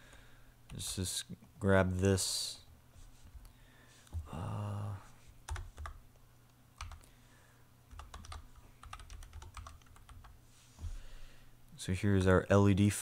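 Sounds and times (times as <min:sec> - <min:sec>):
keyboard keystrokes: 0:06.8 - 0:07.0, 0:07.9 - 0:10.3.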